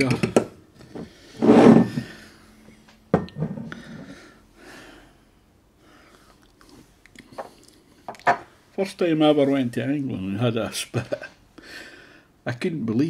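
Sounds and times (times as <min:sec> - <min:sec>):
glass bottle knocking on table: 0:03.1 - 0:03.7.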